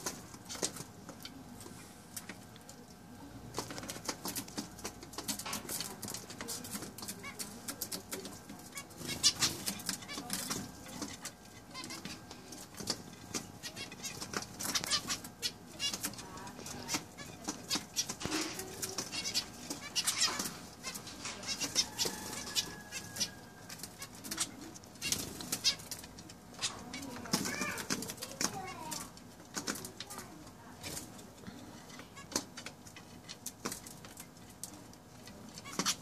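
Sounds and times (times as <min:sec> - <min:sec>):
wings fluttering: 0:00.0 - 0:02.5, 0:03.4 - 0:31.3, 0:31.9 - 0:36.0
finches chirping: 0:04.5 - 0:29.2.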